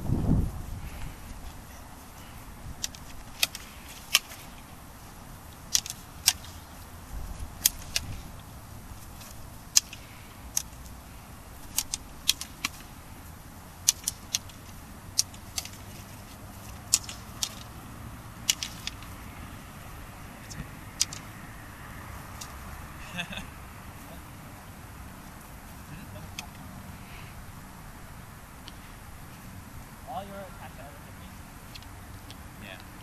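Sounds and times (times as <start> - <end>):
low background rumble: 0.0 - 33.0
sticks clacking together: 2.8 - 4.8, 5.5 - 13.0, 13.8 - 19.3, 20.5 - 21.4, 22.3 - 22.6.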